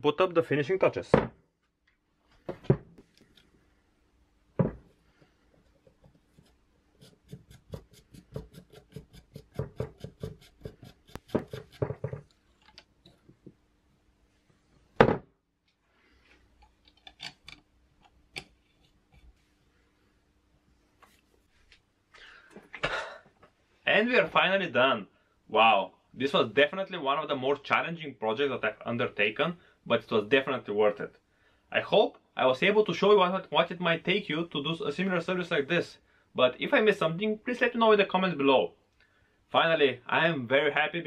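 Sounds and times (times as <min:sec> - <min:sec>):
knocks on wooden bench: 0:04.6 - 0:04.8, 0:11.3 - 0:12.3, 0:15.0 - 0:15.3.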